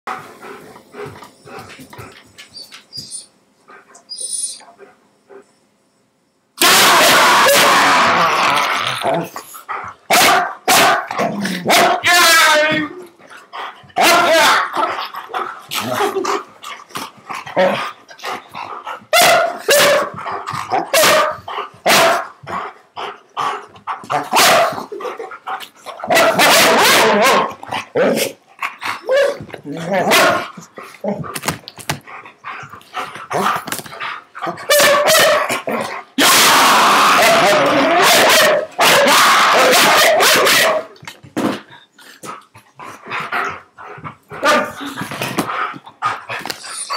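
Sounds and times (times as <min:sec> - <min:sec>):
dog growling and barking: 0:06.6 - 0:12.1, 0:13.5 - 0:31.4, 0:32.1 - 0:41.1
dog barking: 0:10.1 - 0:12.0, 0:19.1 - 0:22.3, 0:24.1 - 0:24.8, 0:26.1 - 0:28.2, 0:30.1 - 0:30.4, 0:34.7 - 0:35.6, 0:37.4 - 0:40.9.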